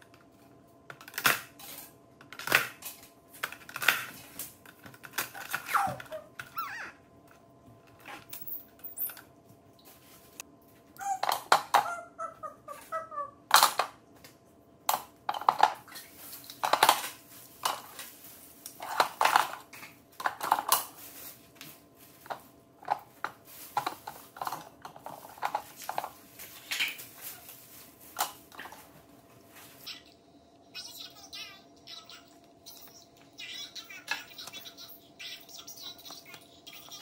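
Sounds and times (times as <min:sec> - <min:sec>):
metal utensils clinking and clattering: 0:23.8 - 0:27.1.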